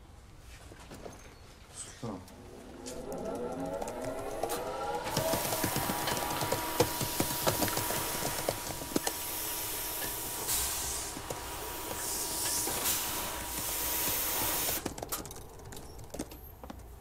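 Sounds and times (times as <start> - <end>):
fogging machine hissing: 2.4 - 15.0.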